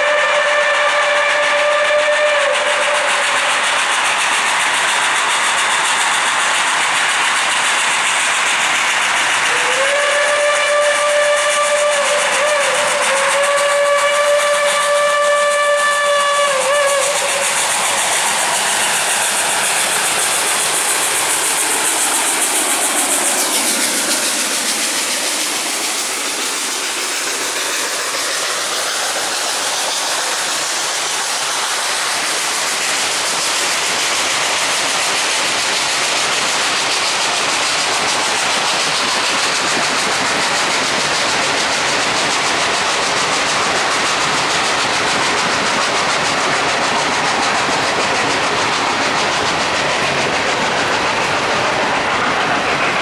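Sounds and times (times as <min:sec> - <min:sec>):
steam whistle: 0:00.0 - 0:03.8, 0:09.4 - 0:18.0
steam hissing: 0:00.0 - 0:53.0
rumble of passing freight cars: 0:44.5 - 0:53.0.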